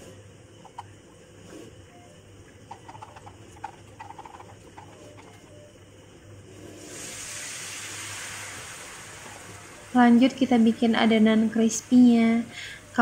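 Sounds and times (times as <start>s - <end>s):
spoon stirring in plastic jug: 2.6s - 5.5s.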